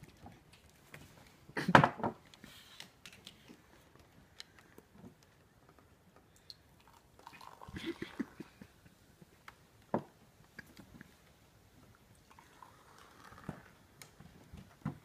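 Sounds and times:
faint clicks and rustles: 0.0 - 1.6, 2.2 - 6.5.

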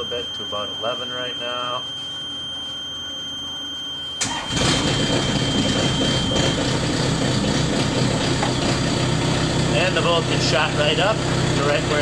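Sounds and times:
steady high tone: 0.0 - 12.0
diesel engine starting and idling: 4.2 - 12.0.

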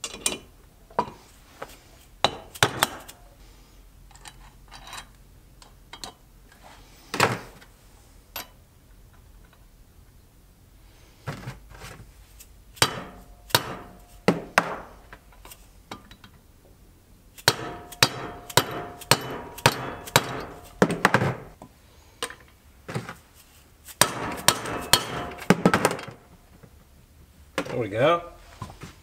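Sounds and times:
mallet striking metal engine case: 12.8 - 14.9, 17.4 - 21.6, 24.0 - 26.2.

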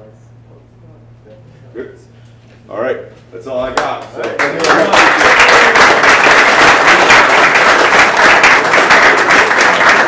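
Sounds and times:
audience applauding: 4.2 - 10.0.

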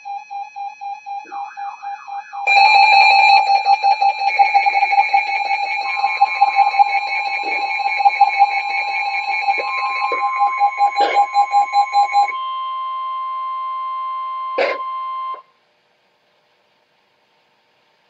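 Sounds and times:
high alarm tones: 0.0 - 15.4
steady warning tone: 0.0 - 15.4
rapid beeping tone: 1.0 - 12.9.

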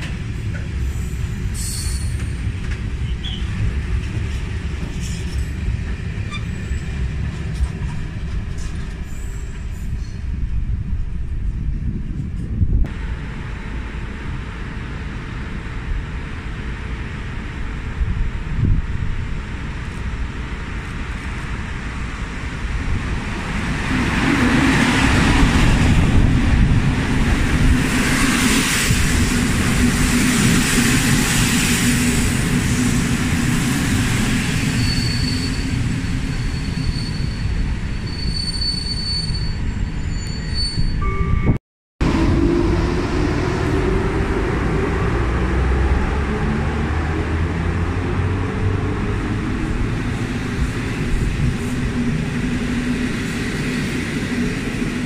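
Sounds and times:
train wheels rumbling on rails: 0.0 - 41.4, 42.0 - 55.0
high wheel squeal: 34.6 - 41.3.

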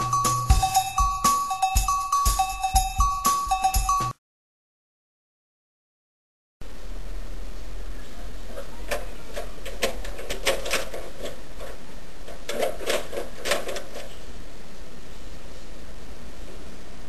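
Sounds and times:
background hiss: 6.6 - 17.0.

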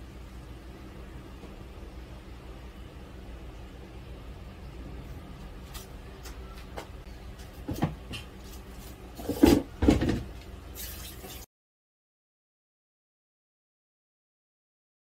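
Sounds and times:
low steady hum: 0.0 - 11.5.

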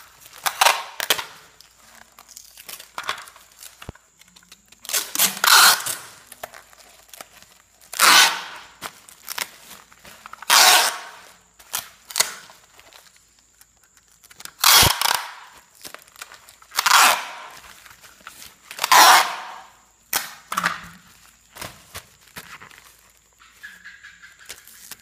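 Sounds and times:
packing tape ripping: 0.2 - 23.2
tape dispenser clicks and snaps: 0.4 - 1.4, 2.2 - 6.6, 7.8 - 8.7, 10.3 - 12.5, 13.6 - 17.6, 18.7 - 20.8.

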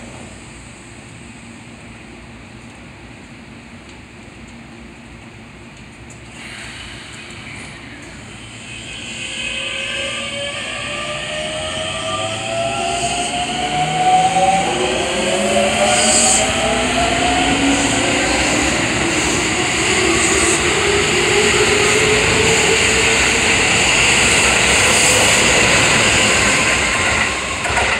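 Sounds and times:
wheel and rail rushing noise: 5.8 - 27.9.

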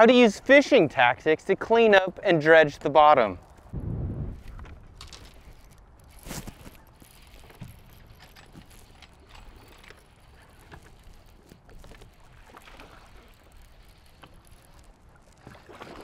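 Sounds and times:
low wind rumble: 3.4 - 10.4
waves slapping boat hull: 10.3 - 16.0.

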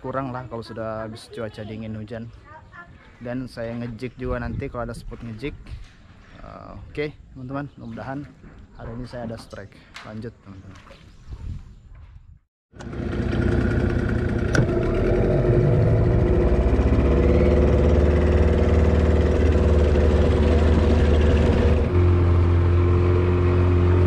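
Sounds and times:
boat engine running: 12.8 - 24.0.

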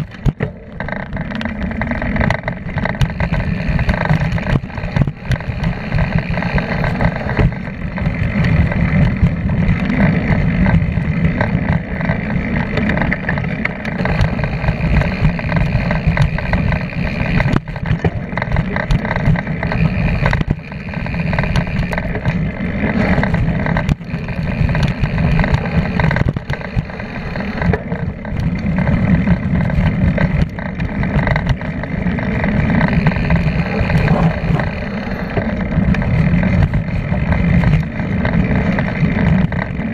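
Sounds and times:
bike rattling over bumps: 0.0 - 39.9
tyre and wind rumble: 0.0 - 39.9.

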